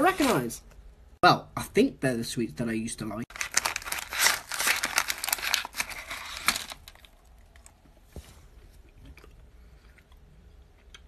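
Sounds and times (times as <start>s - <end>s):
plastic packet crinkling: 0.0s - 0.6s, 3.3s - 7.7s.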